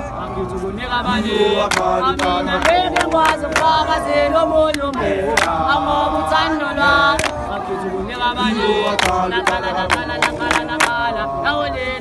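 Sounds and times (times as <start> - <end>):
men singing together unaccompanied: 0.0 - 12.0
hands clapping: 1.7 - 3.8, 4.7 - 5.6, 7.1 - 7.4, 9.0 - 11.0.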